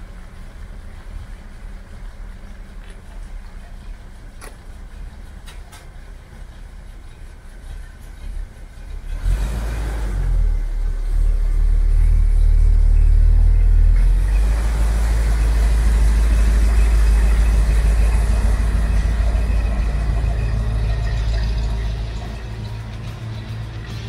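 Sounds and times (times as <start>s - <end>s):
truck engine rumbling past: 0.0s - 24.0s.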